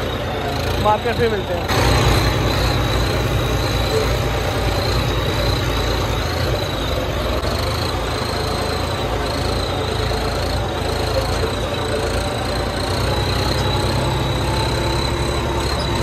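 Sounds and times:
high turbo whistle: 0:00.0 - 0:16.0
tractor diesel engine running: 0:00.0 - 0:16.0.

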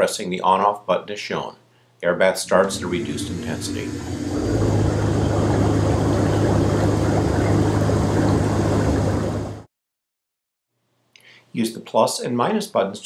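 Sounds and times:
blower hum: 0:02.4 - 0:09.7
air bubbling through water: 0:02.8 - 0:09.7.

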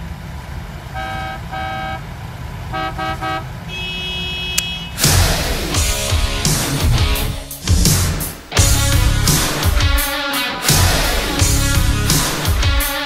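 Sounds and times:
car horns honking: 0:00.9 - 0:02.1, 0:02.7 - 0:05.2
electric guitar rock music: 0:05.0 - 0:13.0.

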